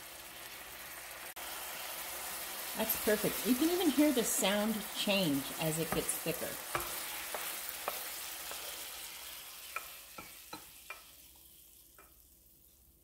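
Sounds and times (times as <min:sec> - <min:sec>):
onions sizzling in a pan: 0:00.0 - 0:13.0
wooden spoon stirring and scraping: 0:04.8 - 0:12.1
spoon tapping against pan: 0:05.8 - 0:08.8, 0:09.7 - 0:12.2.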